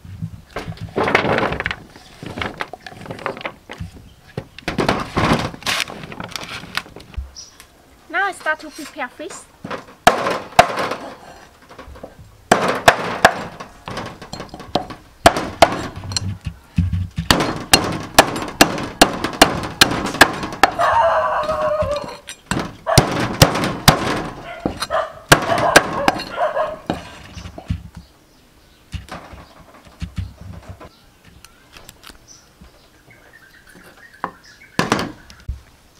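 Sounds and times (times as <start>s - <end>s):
rooster crowing: 20.6s - 22.3s.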